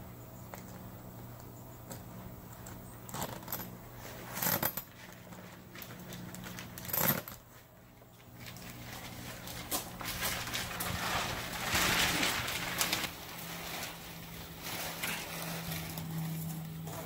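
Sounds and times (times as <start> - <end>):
steady low hum: 0.0 - 17.0
screen panel rustling and scraping: 8.4 - 17.0.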